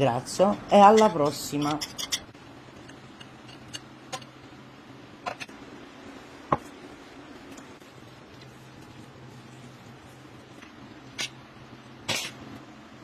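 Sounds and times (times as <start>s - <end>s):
low steady hum: 0.0s - 13.0s
utensils tapping a dish: 0.9s - 4.3s.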